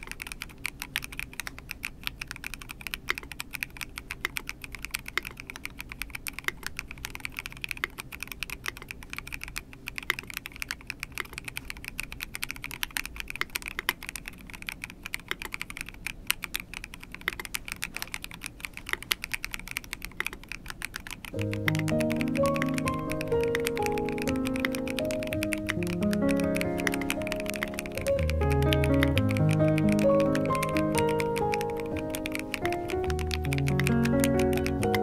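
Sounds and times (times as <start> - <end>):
fast mechanical keyboard typing: 0.0 - 35.0.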